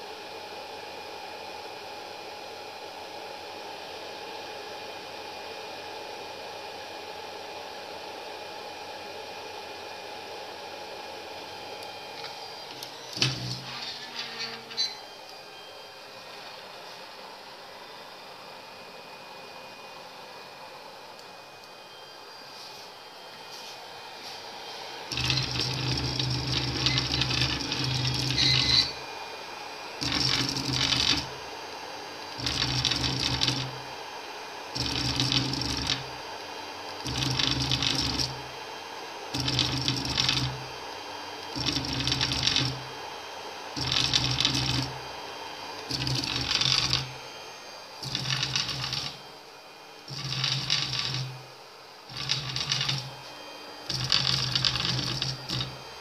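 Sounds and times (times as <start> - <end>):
printer stepper motors buzzing and whining: 11.8 - 17.0, 21.4 - 56.0.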